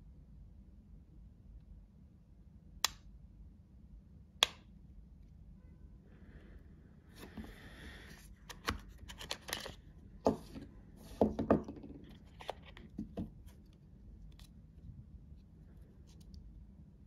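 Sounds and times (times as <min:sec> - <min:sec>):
cardboard knocks and clicks: 0:10.2 - 0:13.5.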